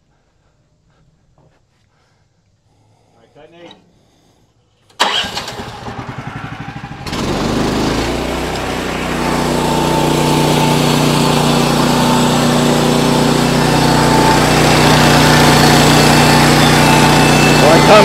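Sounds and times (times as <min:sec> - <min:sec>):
gas engine cranking and running: 0:04.8 - 0:18.0.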